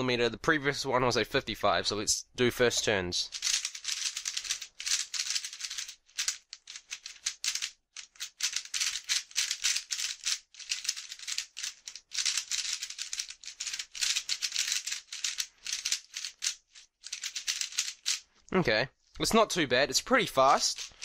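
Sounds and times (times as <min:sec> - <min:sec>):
puzzle cube clicking as turned: 0:03.3 - 0:18.2.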